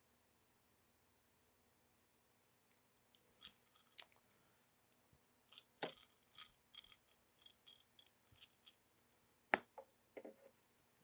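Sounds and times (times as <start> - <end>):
metal screws clinking: 3.3 - 4.2, 5.5 - 8.8.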